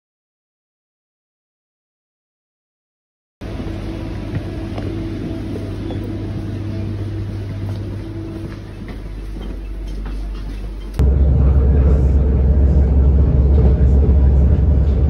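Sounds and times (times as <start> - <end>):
train carriage rumble and hum: 3.4 - 15.0.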